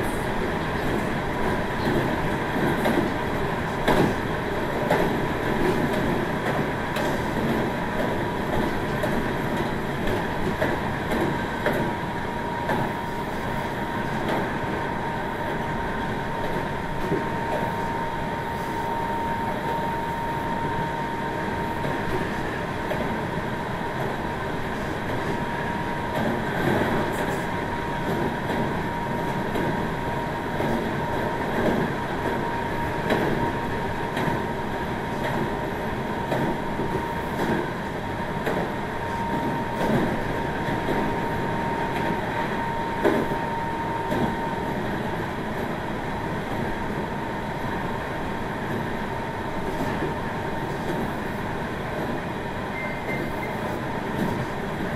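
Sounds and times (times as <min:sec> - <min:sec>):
electric train inverter whine: 0:00.0 - 0:54.9
wheel and track rumble: 0:00.0 - 0:54.9
rail-joint clicks: 0:00.8 - 0:12.0, 0:12.6 - 0:14.6, 0:24.8 - 0:34.5, 0:35.1 - 0:37.8, 0:38.4 - 0:45.0, 0:52.0 - 0:54.6.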